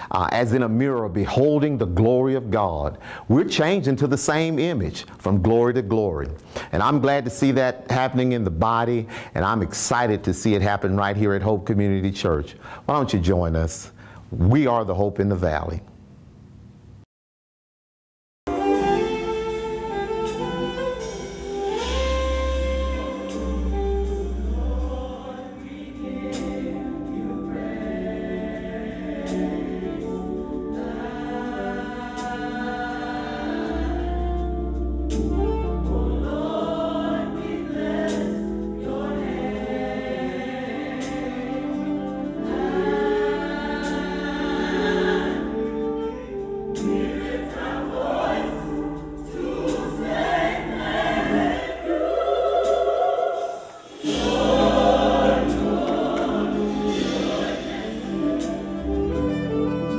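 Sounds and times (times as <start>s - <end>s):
gospel choir singing: 18.5s - 59.9s
steady percussive beat: 46.8s - 59.9s.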